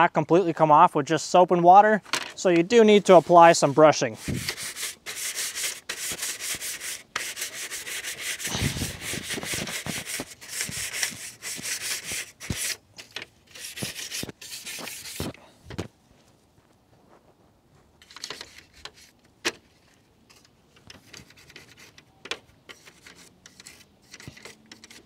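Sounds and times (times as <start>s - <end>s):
brush scrubbing wet plastic grille: 2.5s - 12.8s, 13.5s - 15.4s.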